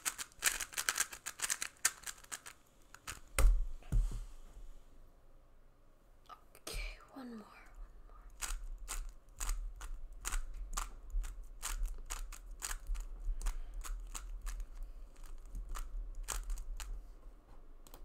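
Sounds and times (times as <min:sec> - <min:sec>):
plastic puzzle cube clacking: 0:00.0 - 0:03.3, 0:08.4 - 0:14.6, 0:15.2 - 0:16.9.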